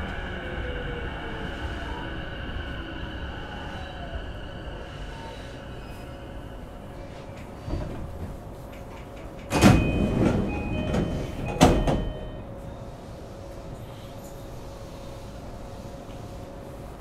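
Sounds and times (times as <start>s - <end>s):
train doors sliding: 7.0s - 16.2s.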